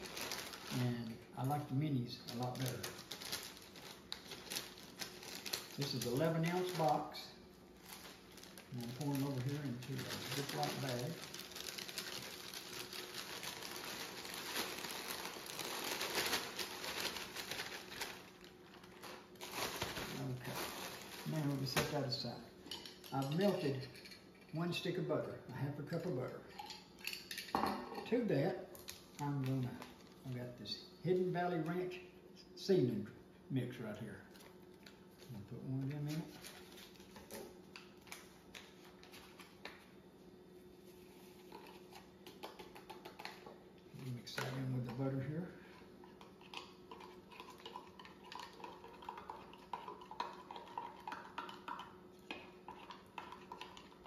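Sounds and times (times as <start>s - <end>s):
paper packet rustling: 0.0s - 1.0s, 2.2s - 22.3s, 35.8s - 39.8s
plastic crinkling: 0.0s - 1.6s, 2.2s - 23.6s, 34.3s - 39.8s
low steady hum: 0.0s - 54.0s.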